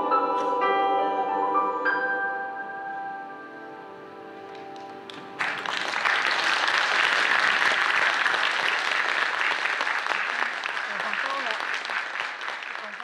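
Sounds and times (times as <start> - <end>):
choir and piano chord: 0.0 - 4.4
audience applause: 5.1 - 13.0.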